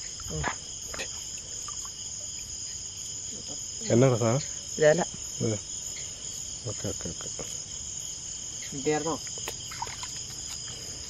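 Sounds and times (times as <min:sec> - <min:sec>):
crickets and insects trilling: 0:00.0 - 0:11.0.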